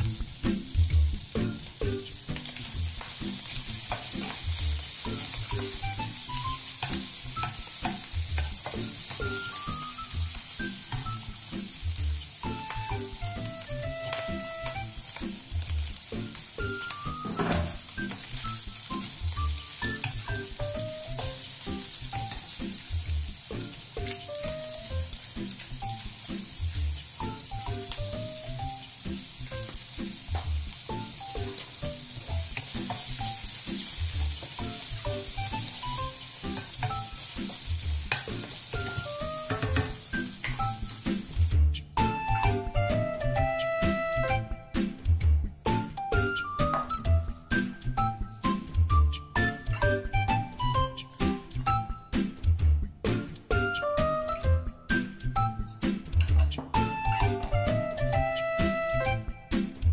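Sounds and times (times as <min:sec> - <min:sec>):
food sizzling in oil: 0:00.0 - 0:52.4, 0:53.0 - 0:59.9
light background music: 0:00.0 - 0:59.9
wooden spatula scraping a pan: 0:17.2 - 0:17.9.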